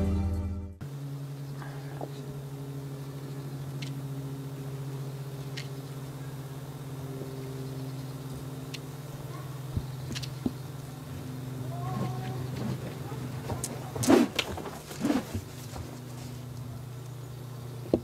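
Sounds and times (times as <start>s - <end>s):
low droning hum: 0.0s - 18.0s
faint high ticks: 8.7s - 8.9s.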